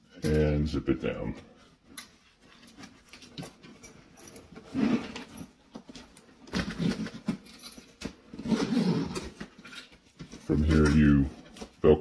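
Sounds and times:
zipper being pulled: 4.7 - 5.4, 8.3 - 9.4.

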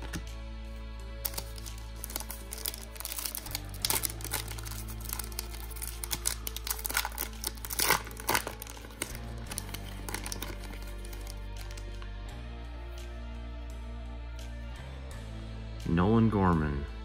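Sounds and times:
foil wrapper crinkling and tearing: 1.2 - 11.9.

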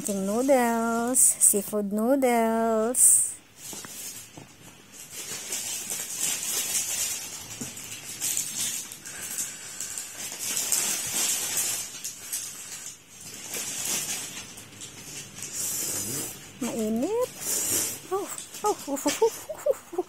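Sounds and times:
person slurping noodles: 15.6 - 16.4.

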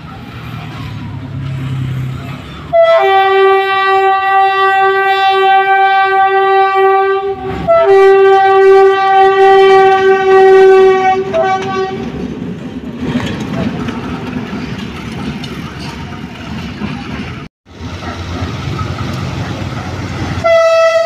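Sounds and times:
locomotive air horn blasts: 2.7 - 12.1, 20.4 - 21.0.

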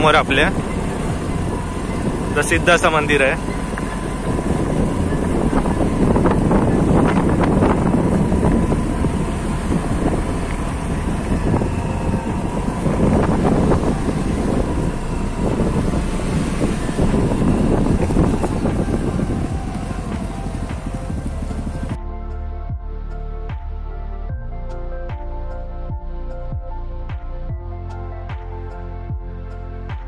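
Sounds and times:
motor scooter engine running: 0.0 - 22.0
wind buffeting microphone: 0.0 - 22.0.

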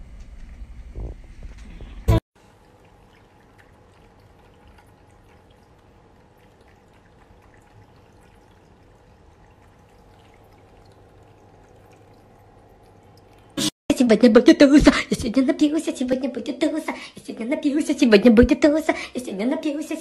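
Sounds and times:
faint water trickle: 2.4 - 13.6
cat lapping water: 2.4 - 13.7.

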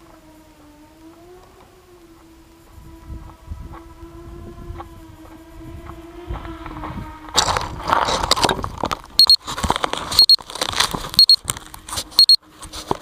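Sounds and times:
scraping and crunching on microphone: 6.3 - 13.0
short high beep: 9.2 - 9.4, 10.2 - 10.4, 11.2 - 11.4, 12.2 - 12.4.

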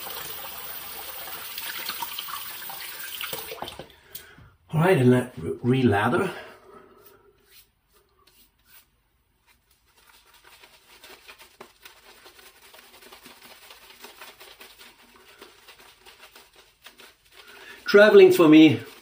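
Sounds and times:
shaving brush swishing on skin: 7.4 - 19.0.

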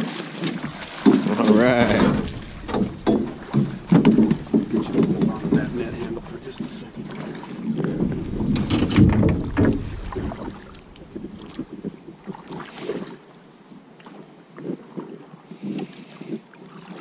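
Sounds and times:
water splashing around boat: 0.0 - 17.0
wind on microphone: 0.5 - 13.2.

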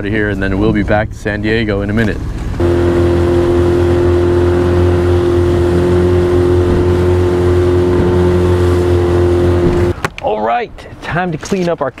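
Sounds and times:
outboard motor running: 2.2 - 10.0.

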